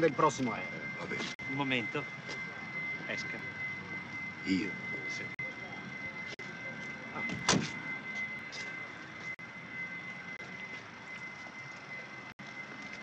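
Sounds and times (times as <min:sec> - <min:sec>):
high-pitched hum: 0:00.0 - 0:13.0
outdoor background noise: 0:00.0 - 0:13.0
car door shutting: 0:07.3 - 0:07.8.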